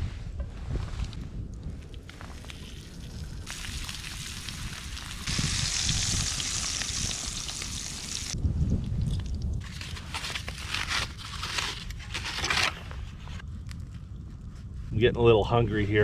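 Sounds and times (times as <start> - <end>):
bacon sizzling in a skillet: 3.5 - 8.3.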